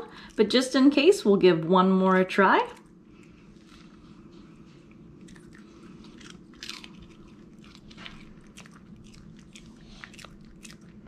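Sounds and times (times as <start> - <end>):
dog crunching a crispy treat: 5.2 - 11.0.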